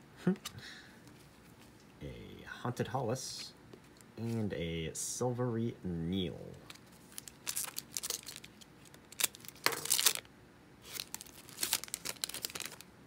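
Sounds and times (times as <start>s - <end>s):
wrapper crinkling: 6.7s - 12.9s.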